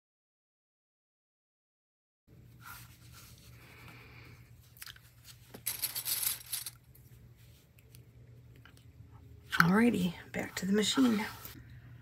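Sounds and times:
clips rattling in a bucket: 5.5s - 6.8s.

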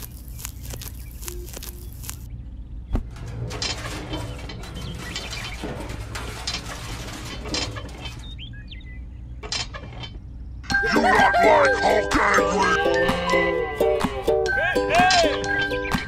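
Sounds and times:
bird chirps: 0.0s - 3.0s, 8.2s - 9.4s
music: 10.7s - 16.0s.

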